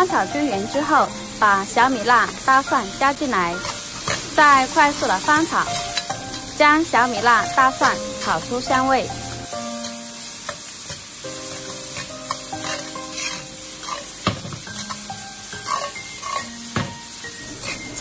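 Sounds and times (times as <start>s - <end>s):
food sizzling in a wok: 0.0s - 18.0s
metal ladle scraping and clacking: 15.6s - 16.5s.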